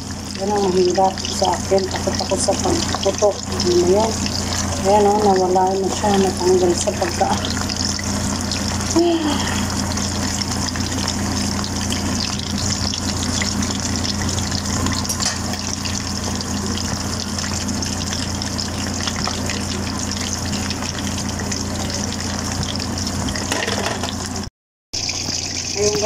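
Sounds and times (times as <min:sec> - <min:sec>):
shrimp deep-frying in oil: 0:00.0 - 0:26.0.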